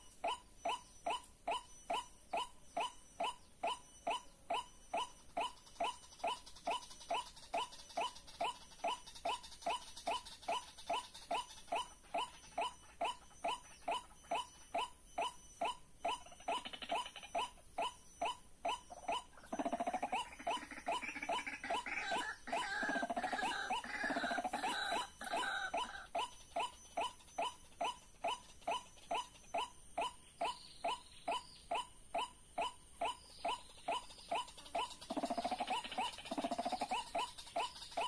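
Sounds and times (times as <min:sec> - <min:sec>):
louder tangled bird calling: 0:00.0 - 0:38.0
waterhen calls: 0:18.9 - 0:26.1, 0:33.1 - 0:38.0.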